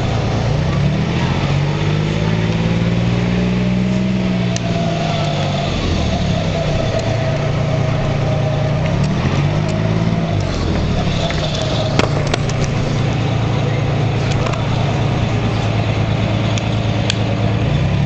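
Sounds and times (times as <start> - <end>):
bus diesel engine: 0.0 - 18.0
steady high whine: 3.6 - 17.8.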